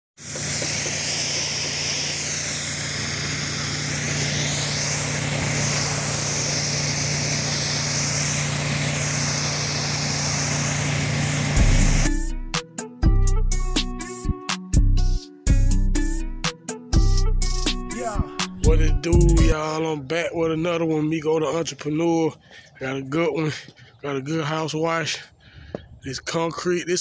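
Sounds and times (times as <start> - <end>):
pressure washer engine hum: 0.2 - 12.2
pressure washer spray hiss: 0.2 - 12.2
intro music: 11.4 - 19.6.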